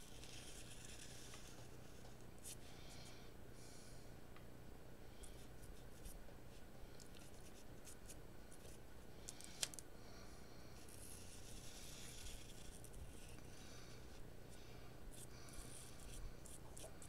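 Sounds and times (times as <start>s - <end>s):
marker scratching on wax paper: 0.0s - 2.6s, 10.8s - 13.4s, 15.1s - 17.0s.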